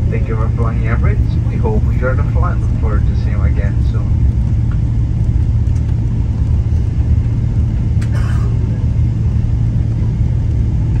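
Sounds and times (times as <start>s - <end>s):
aircraft engine hum: 0.0s - 11.0s.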